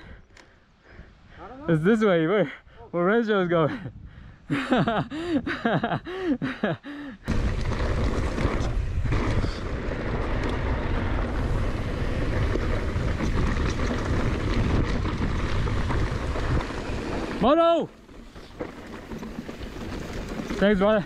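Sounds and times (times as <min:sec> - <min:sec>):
wind buffeting microphone: 0:03.8 - 0:05.7, 0:07.3 - 0:21.0
bike rattling over dirt trail: 0:07.3 - 0:21.0.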